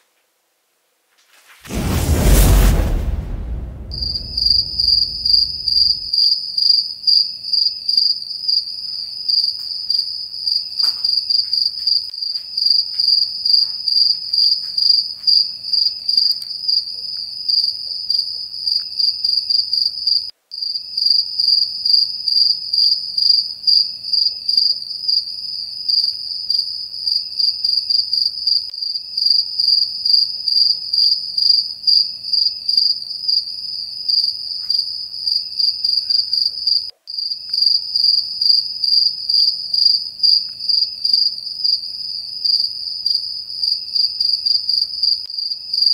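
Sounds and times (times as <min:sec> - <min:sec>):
cricket chirping: 0:12.6 - 0:45.9.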